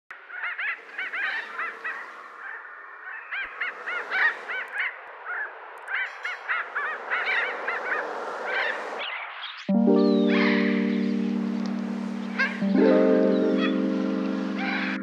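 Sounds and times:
flock of parrots squawking: 0.3s - 9.5s.

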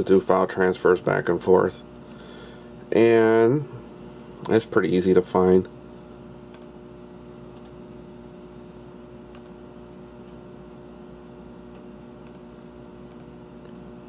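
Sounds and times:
steady electrical hum: 0.0s - 14.0s
computer mouse clicks: 6.5s - 6.7s, 9.3s - 9.6s, 12.2s - 12.4s, 13.1s - 13.3s.

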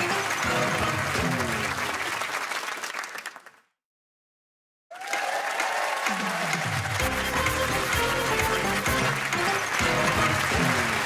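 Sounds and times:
music: 0.0s - 2.0s, 6.5s - 11.0s
audience applauding: 0.0s - 3.7s, 4.9s - 11.0s.

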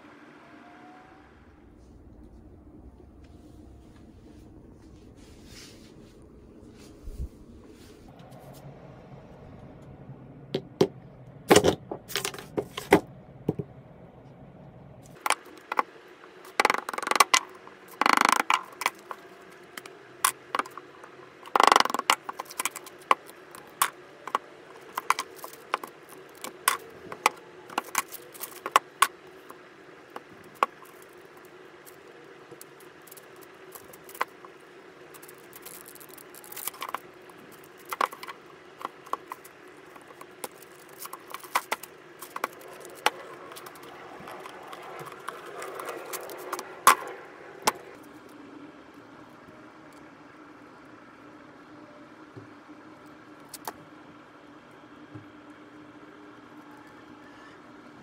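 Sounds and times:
resin scraping plastic: 15.2s - 48.0s.

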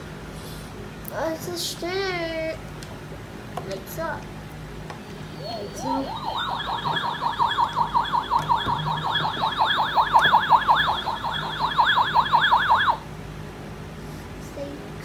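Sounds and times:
warbling toy siren: 5.3s - 13.0s.

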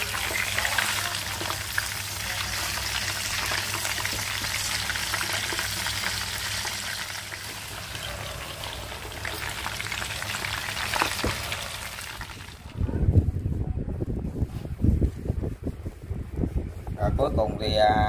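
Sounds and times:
fish frying in hot oil: 0.0s - 12.8s
sauce bubbling: 0.0s - 12.8s.

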